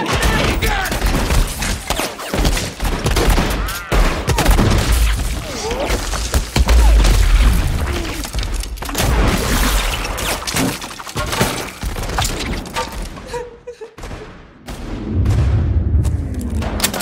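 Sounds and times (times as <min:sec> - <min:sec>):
rapid gunshots: 0:00.0 - 0:10.4.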